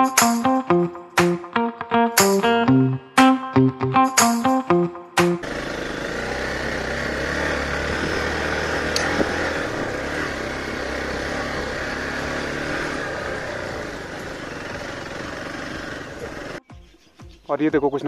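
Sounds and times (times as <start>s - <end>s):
motorcycle engine running: 5.2s - 16.6s
wind and road noise: 5.4s - 16.6s
sharp click: 8.9s - 9.2s.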